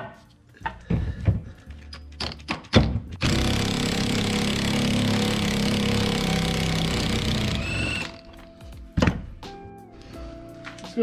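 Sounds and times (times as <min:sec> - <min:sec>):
impact wrench hammering: 0:02.2 - 0:08.2.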